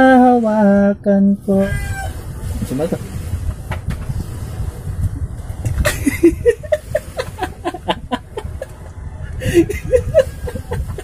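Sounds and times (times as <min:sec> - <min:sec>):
steady low rumble: 0:00.0 - 0:11.0
men laughing: 0:05.7 - 0:11.0.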